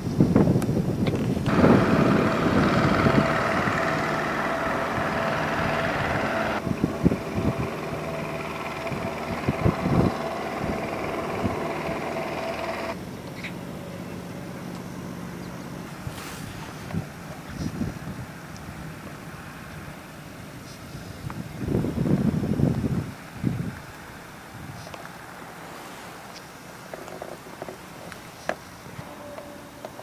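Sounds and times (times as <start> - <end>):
wind on microphone: 0.0 - 13.0, 15.9 - 19.4, 20.6 - 25.0
steady hum: 1.5 - 17.3.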